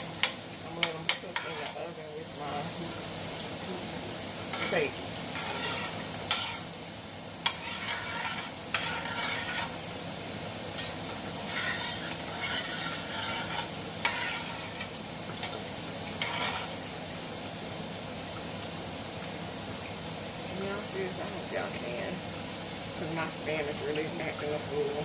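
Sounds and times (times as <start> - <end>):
onions sizzling in oil: 0.0 - 25.0
metal spoon scraping a pan: 0.2 - 2.6, 4.5 - 6.8, 7.4 - 9.8, 10.7 - 15.6, 16.2 - 16.8.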